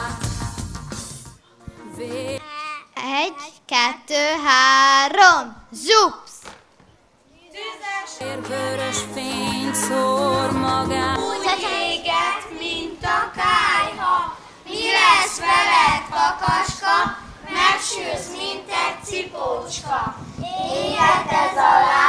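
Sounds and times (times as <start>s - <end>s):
children singing in unison: 8.2s - 22.0s.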